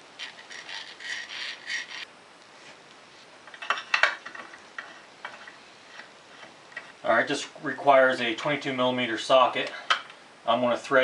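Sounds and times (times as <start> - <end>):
oil can rasping pumps: 0.2 - 2.1.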